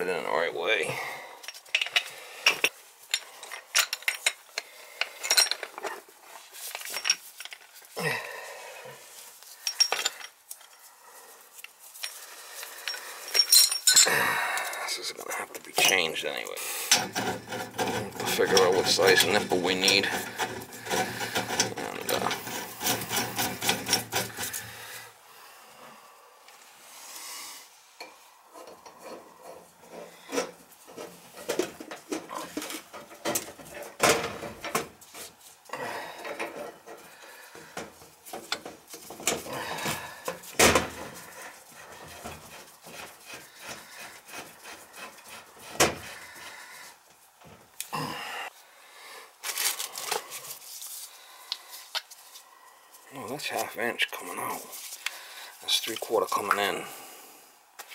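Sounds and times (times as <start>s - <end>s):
metal fittings clinking and rattling: 1.4s - 6.0s, 6.6s - 7.8s, 9.5s - 10.8s, 11.6s - 14.2s, 16.9s - 24.7s.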